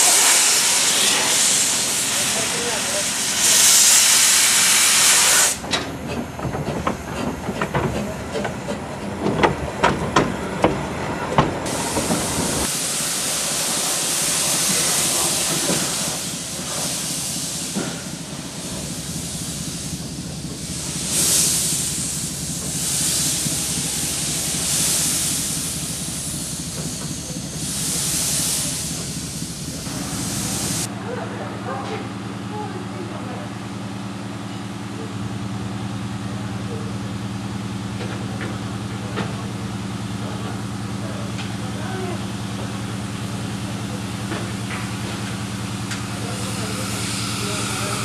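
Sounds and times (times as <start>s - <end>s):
steam hissing from locomotive: 0.0s - 5.6s, 11.6s - 30.9s, 40.9s - 48.0s
sharp clanks and clicks: 5.6s - 11.6s.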